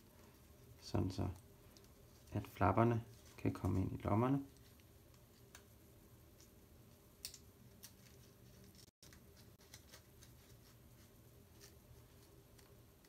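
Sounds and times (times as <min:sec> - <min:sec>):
paper crinkling and ticking: 0:07.6 - 0:12.8.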